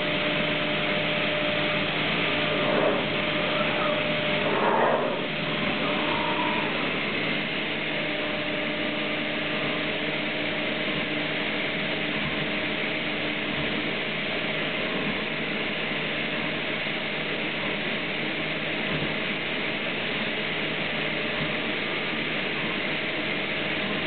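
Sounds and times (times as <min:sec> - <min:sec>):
machine running: 0:00.0 - 0:10.4.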